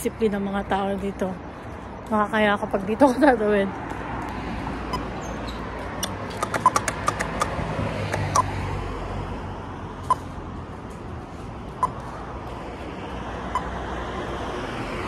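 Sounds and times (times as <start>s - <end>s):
sharp clicks: 5.9s - 8.5s
crossing button locator ticks: 6.0s - 8.5s, 11.8s - 12.0s, 13.5s - 13.8s.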